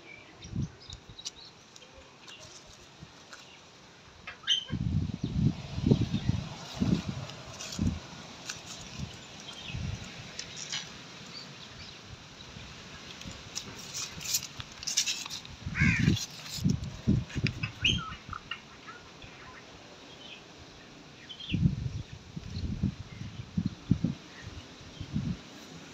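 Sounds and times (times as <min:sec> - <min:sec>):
birds chirping: 0:17.5 - 0:20.4.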